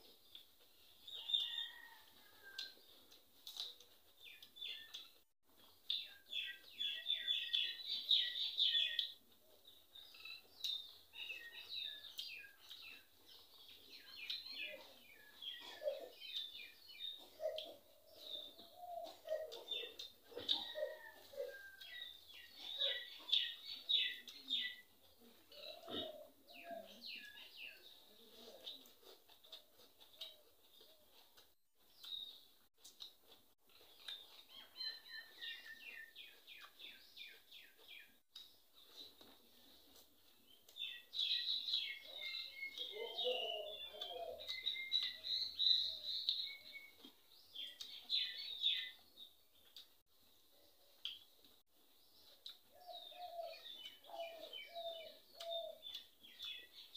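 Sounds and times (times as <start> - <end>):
faint clicks of eating: 0.0 - 56.9
small birds chirping: 0.0 - 56.9
birds chirping: 40.4 - 49.9, 52.1 - 56.9.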